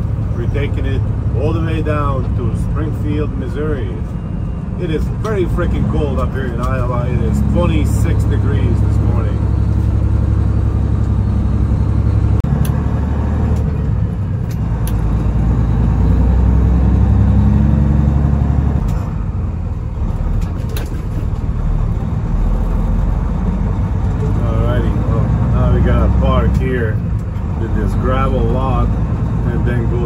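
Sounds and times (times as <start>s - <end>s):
truck diesel engine running: 0.0s - 30.0s.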